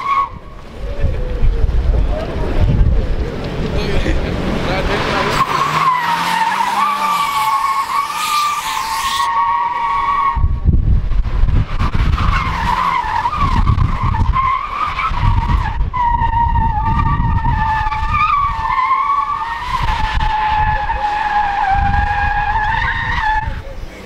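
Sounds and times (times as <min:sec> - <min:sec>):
car engine rumble: 0:00.0 - 0:24.0
tyres screeching: 0:03.2 - 0:10.5, 0:12.0 - 0:24.0.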